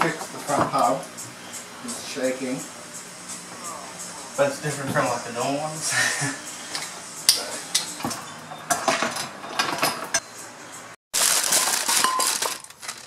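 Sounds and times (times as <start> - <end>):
plastic bag crinkling: 11.1 - 13.0
metal cans clinking: 11.2 - 13.0.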